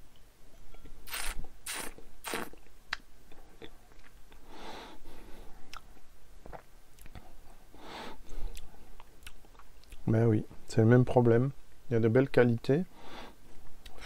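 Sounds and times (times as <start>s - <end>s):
soft breathy hiss: 0.8s - 2.6s, 4.3s - 6.1s, 7.2s - 9.0s, 12.7s - 14.0s
slurping sips: 1.0s - 2.6s.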